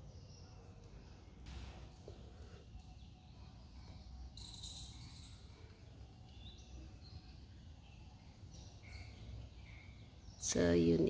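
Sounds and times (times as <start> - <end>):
high chirping: 3.9 - 10.4.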